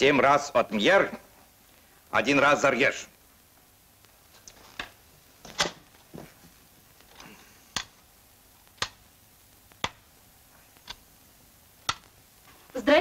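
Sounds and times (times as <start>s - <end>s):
wooden abacus beads clacking: 7.1s - 8.0s, 8.8s - 9.0s, 9.8s - 10.0s, 11.8s - 12.1s.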